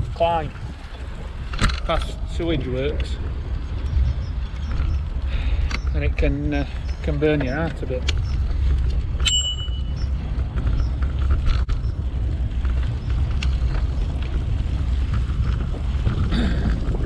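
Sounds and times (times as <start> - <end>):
bicycle tyres on path: 0.0 - 17.0
wind on microphone: 0.0 - 17.0
bicycle bell ding: 9.2 - 10.0.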